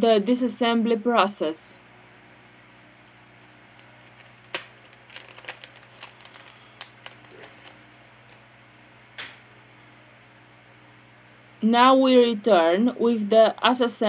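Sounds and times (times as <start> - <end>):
plastic parts clicking and crinkling: 3.4 - 8.4.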